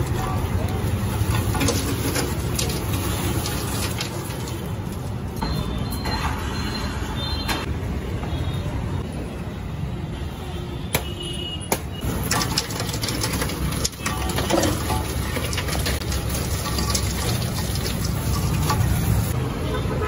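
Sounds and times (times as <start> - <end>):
street rumble: 0.0 - 20.0
crushed ice rattling into drum: 1.0 - 5.0, 12.0 - 19.3.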